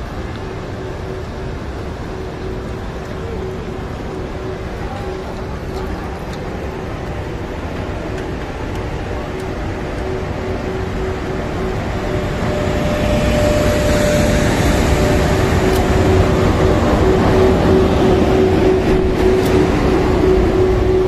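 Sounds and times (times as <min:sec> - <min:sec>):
higher tone: 0:00.0 - 0:21.0
locomotive blowers humming: 0:00.0 - 0:21.0
wheel and rail rumble: 0:00.0 - 0:21.0.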